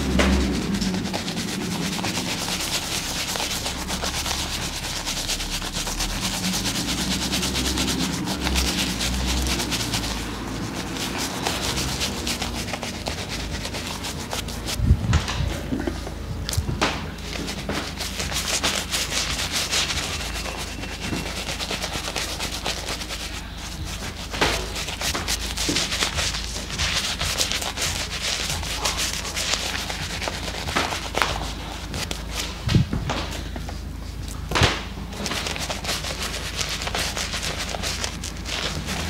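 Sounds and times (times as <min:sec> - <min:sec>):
shaving brush scrubbing beard: 0:00.0 - 0:15.8, 0:17.2 - 0:33.5, 0:35.1 - 0:39.0.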